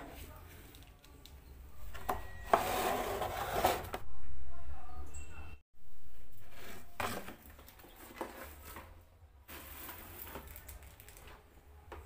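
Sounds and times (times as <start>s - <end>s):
plastic basket and bottles rattling: 7.0s - 11.5s.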